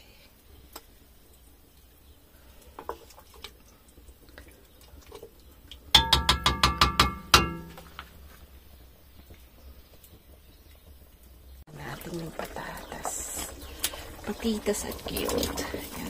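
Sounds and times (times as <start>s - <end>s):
metal spoon clanking on pot: 5.9s - 7.9s.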